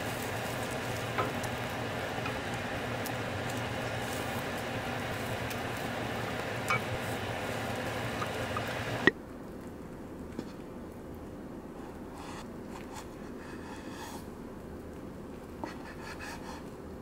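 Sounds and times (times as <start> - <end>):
egg sizzling in frying pan: 0.0 - 9.1.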